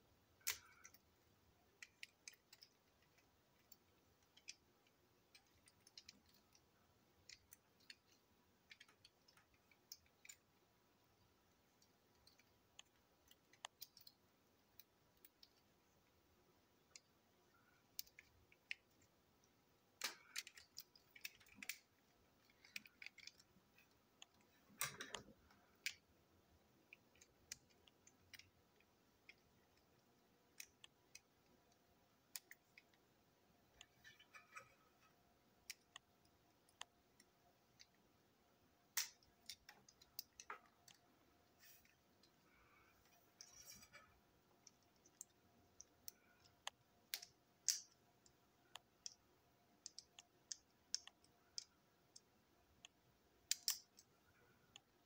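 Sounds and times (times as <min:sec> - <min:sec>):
plastic toy parts clicking: 0:00.4 - 0:01.1, 0:01.7 - 0:10.6, 0:11.8 - 0:15.7, 0:17.8 - 0:26.0, 0:26.8 - 0:33.0, 0:38.9 - 0:41.0, 0:44.6 - 0:49.2, 0:49.8 - 0:54.1.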